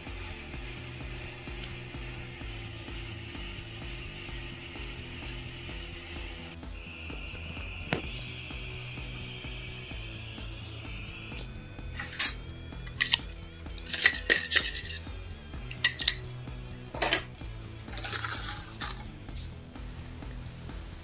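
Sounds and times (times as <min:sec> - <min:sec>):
background music: 0:00.0 - 0:21.0
scraper scraping metal: 0:11.9 - 0:13.2.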